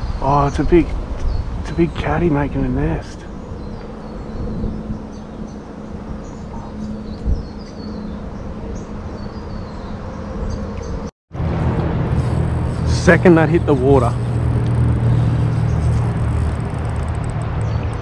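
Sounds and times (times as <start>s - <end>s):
insect buzz: 11.4s - 18.0s.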